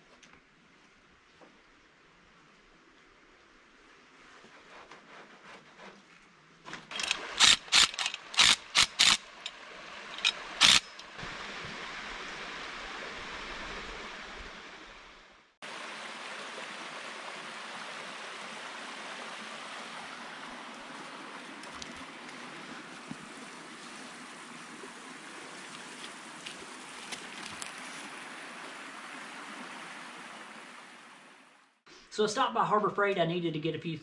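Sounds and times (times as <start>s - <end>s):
steel cable clicking and rattling: 6.7s - 11.1s.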